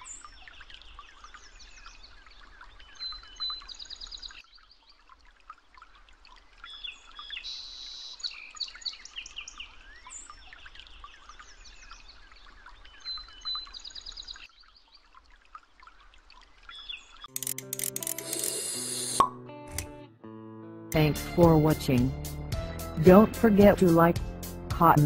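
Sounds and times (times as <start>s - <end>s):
birds chirping and trilling: 0.0s - 5.0s, 6.5s - 15.1s, 16.6s - 17.3s.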